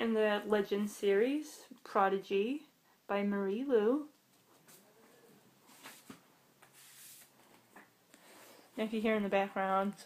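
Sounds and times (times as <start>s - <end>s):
books rustling: 5.6s - 8.6s.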